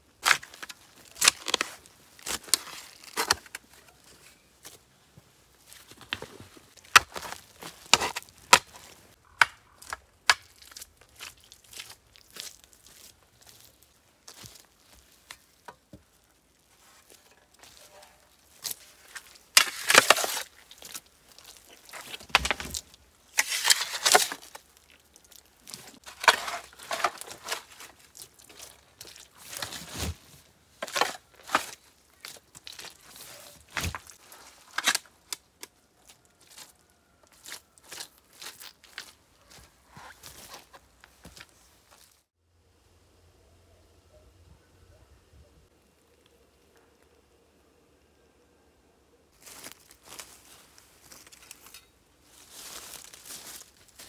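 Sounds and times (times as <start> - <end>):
shovel scraping into earth: 17.7 - 20.6, 21.8 - 24.6, 25.7 - 28.0
soil thrown off shovel: 18.6 - 24.7, 25.6 - 35.1.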